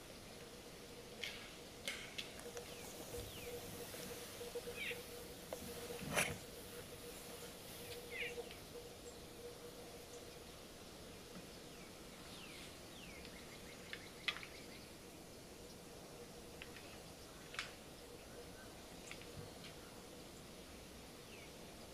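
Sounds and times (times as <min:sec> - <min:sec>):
outdoor background hiss: 0:00.0 - 0:21.9
bird chirps: 0:02.1 - 0:15.0.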